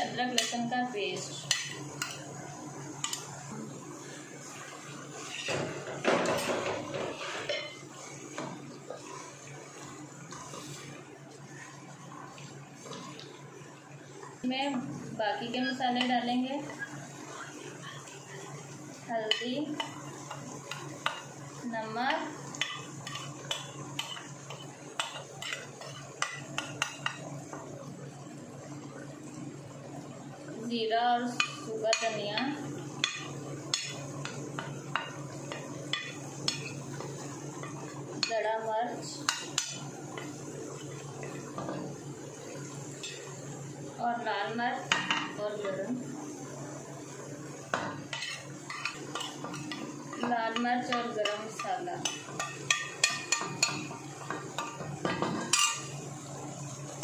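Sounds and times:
spatula stirring in hot oil: 0.0s - 29.8s, 31.2s - 57.0s.

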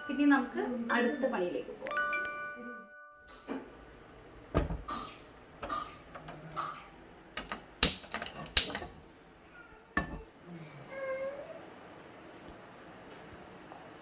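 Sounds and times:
kitchen utensils and cookware knocking: 7.4s - 9.0s, 10.0s - 10.3s.

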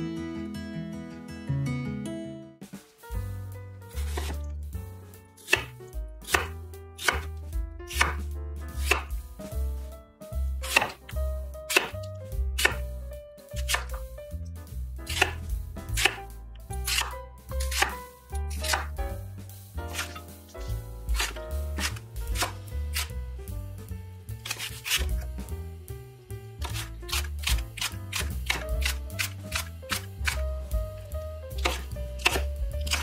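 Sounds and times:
knife chopping on wooden board: 4.0s - 4.5s, 5.4s - 9.2s, 10.6s - 12.9s, 13.6s - 14.0s, 15.1s - 19.0s, 19.9s - 23.2s, 24.4s - 25.3s, 26.6s - 30.4s, 31.5s - 33.0s.

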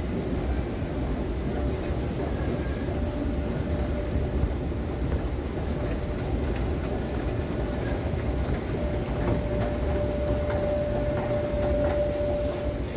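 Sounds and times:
steady hum: 0.0s - 12.9s
escalator rumbling: 2.7s - 12.9s.

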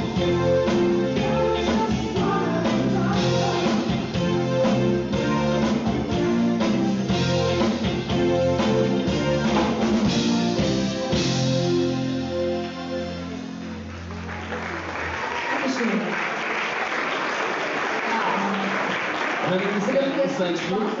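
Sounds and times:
drum kit beat: 0.0s - 14.2s
bass guitar: 0.0s - 15.2s
keyboards: 0.0s - 15.2s
electric guitar: 0.0s - 15.3s.

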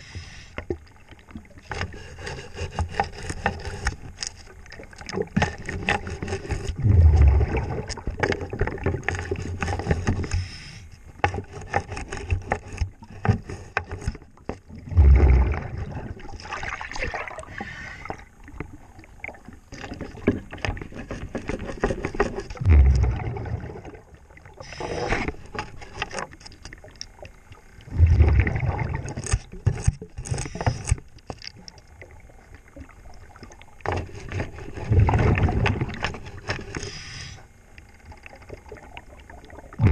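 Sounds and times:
scrub brush scraping a hull: 1.7s - 4.5s, 5.5s - 6.8s, 20.0s - 23.1s
diver's exhaled bubbles gurgling: 6.7s - 9.1s, 14.7s - 19.7s, 22.6s - 25.2s, 27.1s - 29.6s, 34.8s - 36.2s, 38.2s - 39.9s.

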